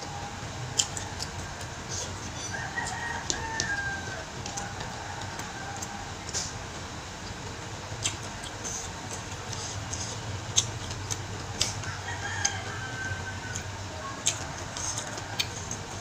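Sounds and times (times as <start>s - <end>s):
steady low hum: 0.0s - 16.0s
woman chewing with wet mouth clicks: 0.7s - 1.8s, 8.0s - 12.6s, 13.5s - 15.9s.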